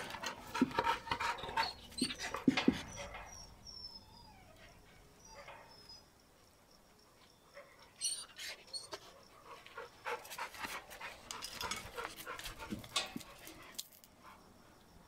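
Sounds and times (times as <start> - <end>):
dogs panting and sniffing: 0.0 - 3.8, 7.6 - 14.8.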